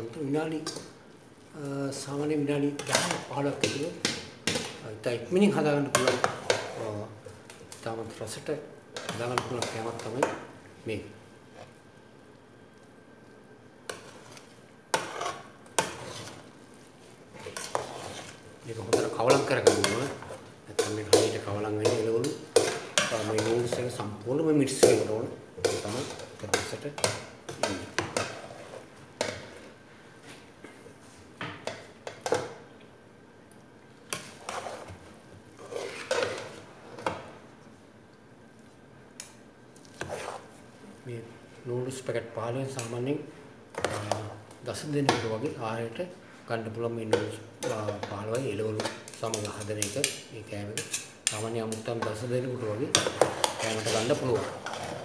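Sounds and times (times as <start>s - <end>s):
noodles scraping and rustling: 14.0s - 16.5s, 17.3s - 21.0s, 35.6s - 36.7s, 39.8s - 40.5s, 53.2s - 55.0s.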